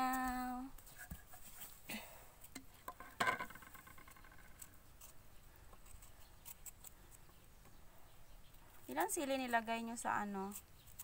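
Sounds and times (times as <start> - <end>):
knife scraping mango skin: 4.6 - 7.4, 8.8 - 11.0.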